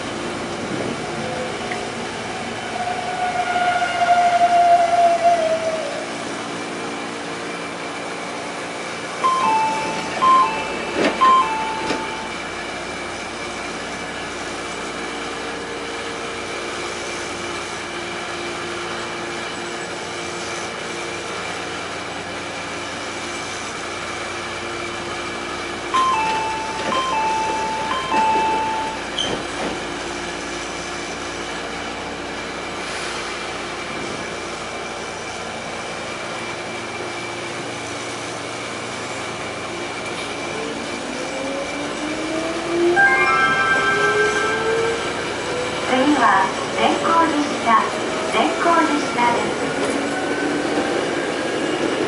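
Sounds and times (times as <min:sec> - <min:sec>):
train electrical hum: 0:00.0 - 0:52.0
door-closing chime: 0:09.2 - 0:12.4, 0:26.0 - 0:29.4, 0:43.0 - 0:44.7.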